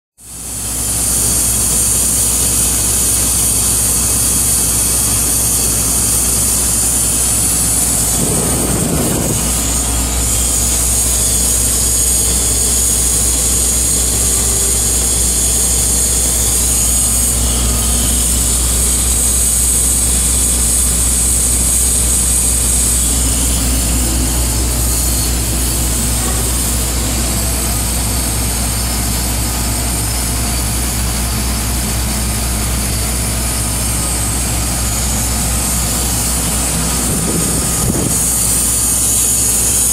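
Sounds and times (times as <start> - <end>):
heavy machinery engine drone: 0.2 - 39.9.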